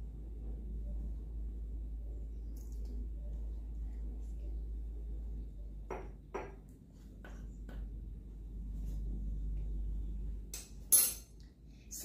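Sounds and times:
steady low hum: 0:00.0 - 0:12.0
utensils and dishes clinking: 0:10.6 - 0:11.4.

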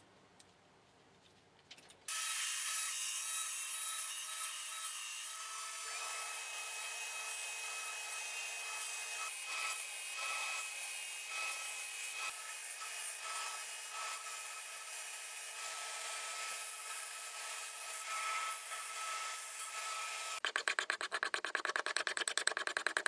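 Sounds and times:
belt grinder sanding wood: 0:07.0 - 0:23.0.

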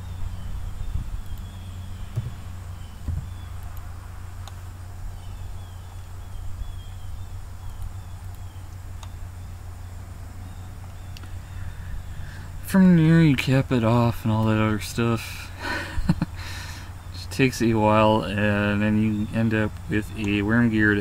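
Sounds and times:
low background hum: 0:00.0 - 0:21.0
sharp clicks: 0:01.2 - 0:01.5, 0:07.6 - 0:09.2, 0:10.9 - 0:11.4, 0:19.7 - 0:20.4.

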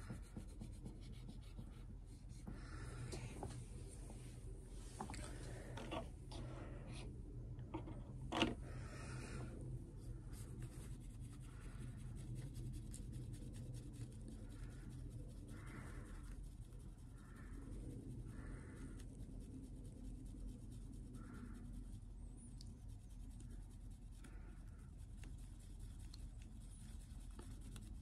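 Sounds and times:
cotton swab rubbing wood: 0:00.0 - 0:02.9, 0:08.6 - 0:22.0, 0:22.6 - 0:28.0
steady low hum: 0:00.0 - 0:28.0.

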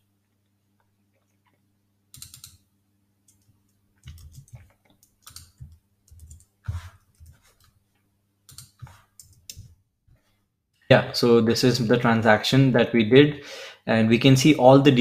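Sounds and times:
keyboard typing: 0:02.1 - 0:02.6, 0:03.3 - 0:07.8, 0:08.5 - 0:09.7.

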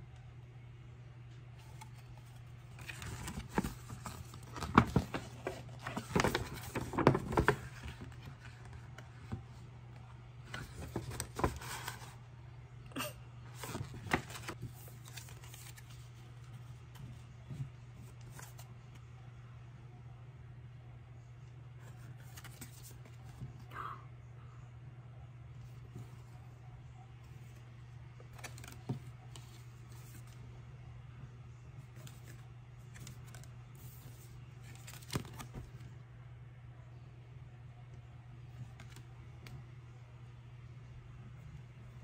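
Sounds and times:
low steady hum: 0:00.0 - 0:42.0
paper rustling and crinkling: 0:01.6 - 0:09.6, 0:10.4 - 0:12.2, 0:13.5 - 0:18.7, 0:28.2 - 0:30.4, 0:31.8 - 0:35.9.

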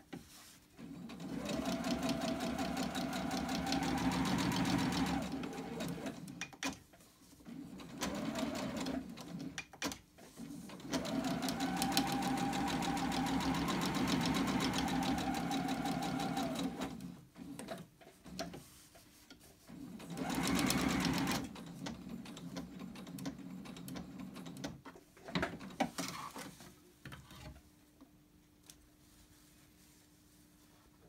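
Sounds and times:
electric sewing machine stitching: 0:01.0 - 0:06.4, 0:10.7 - 0:17.2, 0:20.0 - 0:21.9.

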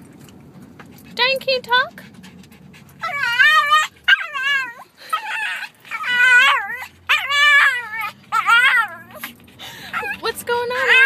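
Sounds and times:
small dog yowling: 0:03.0 - 0:11.0.

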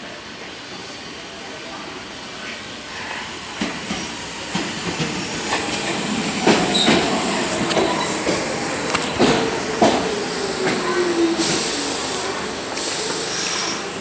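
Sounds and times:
subway train passing: 0:00.0 - 0:14.0
wheels clacking over rail joints: 0:03.6 - 0:11.0
high wheel squeal: 0:06.7 - 0:07.0.

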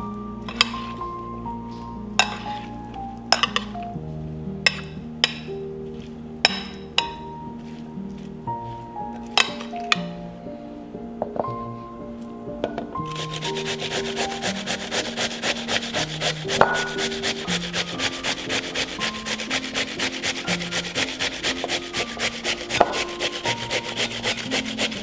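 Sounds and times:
cucumber grated on metal grater: 0:13.1 - 0:25.0.

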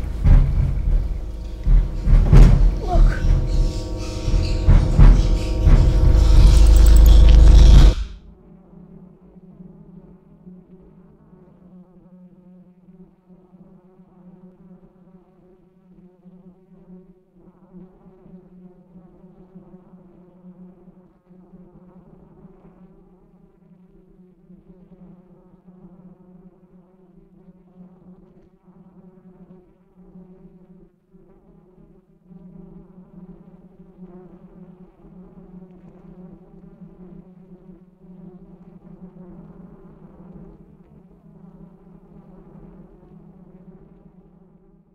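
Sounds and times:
wasp swarm buzzing: 0:00.0 - 0:08.1.

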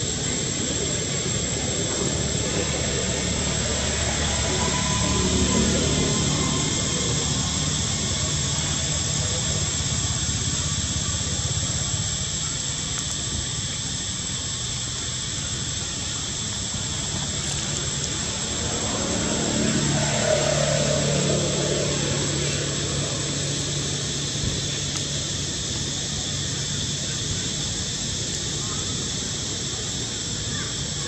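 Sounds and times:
outdoor rumble and hiss: 0:00.0 - 0:31.0.

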